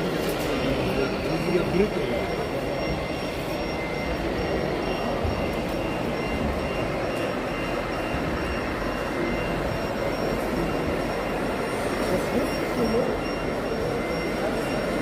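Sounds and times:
crowd din in a hall: 0:00.0 - 0:15.0.

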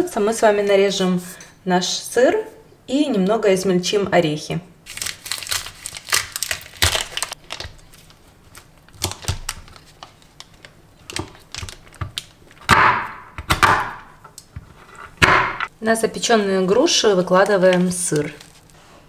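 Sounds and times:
paper wrapper crinkling: 0:04.9 - 0:12.6, 0:17.3 - 0:19.0.

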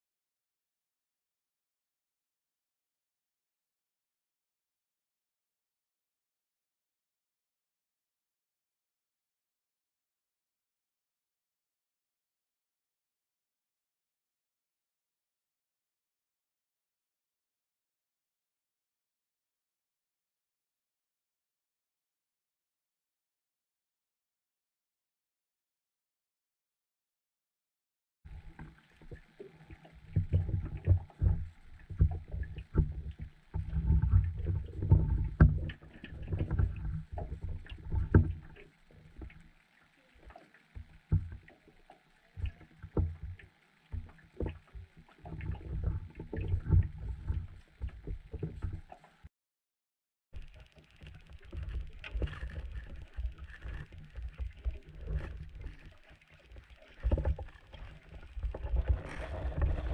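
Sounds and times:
low rumbling water noise: 0:28.3 - 0:49.3, 0:50.4 - 0:59.9.

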